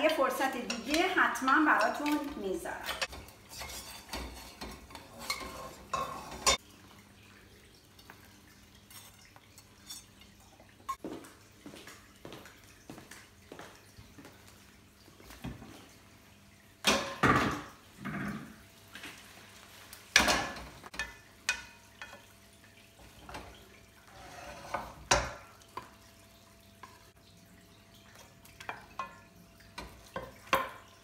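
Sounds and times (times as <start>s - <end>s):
utensil scraping a frying pan: 2.8s - 6.6s, 8.8s - 10.3s, 23.0s - 26.0s.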